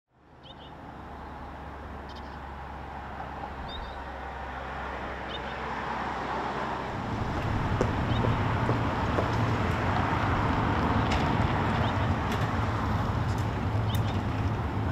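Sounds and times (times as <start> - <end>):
distant traffic hum: 0.1 - 14.9
bird chirps: 0.4 - 0.8, 2.0 - 2.4, 3.6 - 4.1.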